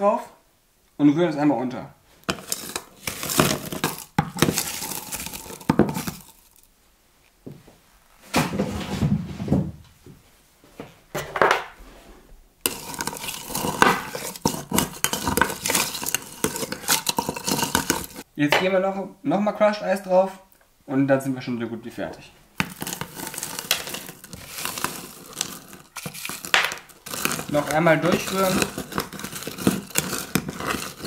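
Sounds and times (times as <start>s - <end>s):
crushed ice clattering into glass: 2.3s - 6.7s, 12.6s - 18.2s, 22.6s - 31.0s.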